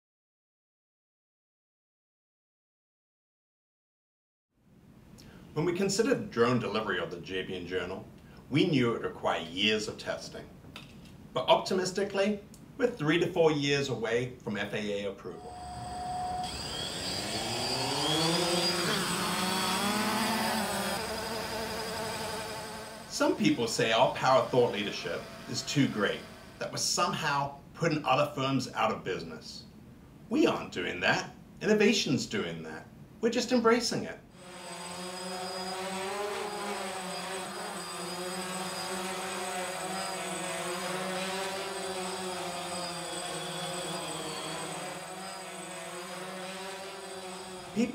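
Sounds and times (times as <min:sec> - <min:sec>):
drone propellers buzzing whine: 0:15.4 - 0:26.8, 0:34.3 - 0:47.9.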